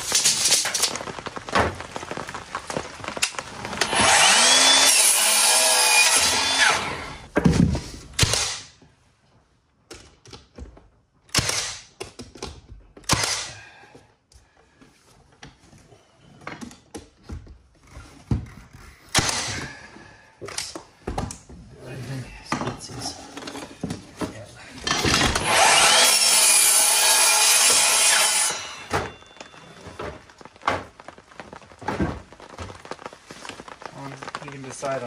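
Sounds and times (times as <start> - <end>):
cordless nailer firing: 3.8 - 7.2, 8.2 - 8.7, 11.3 - 11.9, 13.1 - 13.5, 19.1 - 19.7, 25.0 - 29.1.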